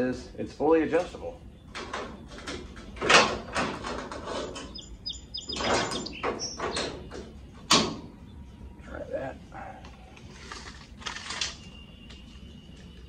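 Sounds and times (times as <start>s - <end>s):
metal scraping and clattering: 1.8s - 4.9s.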